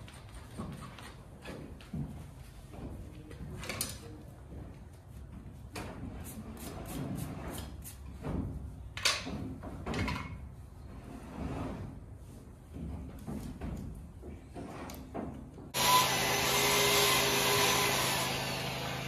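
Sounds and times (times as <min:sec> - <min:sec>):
tool scraping horse hoof: 0:00.0 - 0:02.1, 0:05.6 - 0:08.6, 0:14.4 - 0:19.0.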